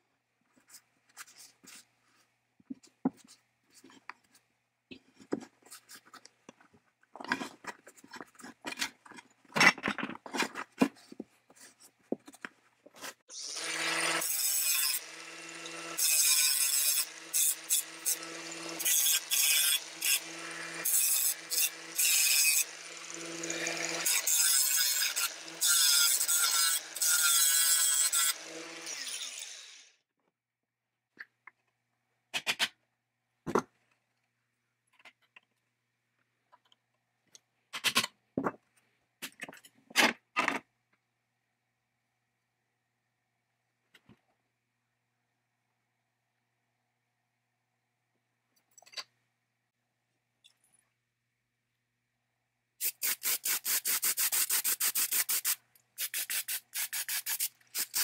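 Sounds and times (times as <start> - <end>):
angle grinder on sheet metal: 13.3 - 29.9.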